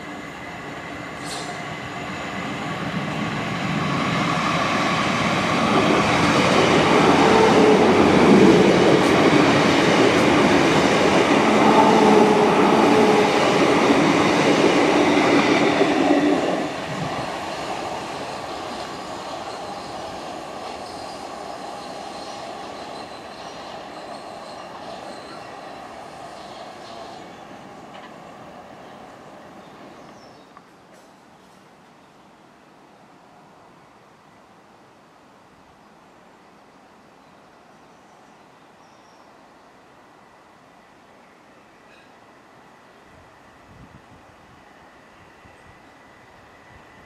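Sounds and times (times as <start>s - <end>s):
train wheels rumbling on rail: 0.0s - 31.7s
train hum: 0.0s - 35.2s, 39.4s - 47.0s.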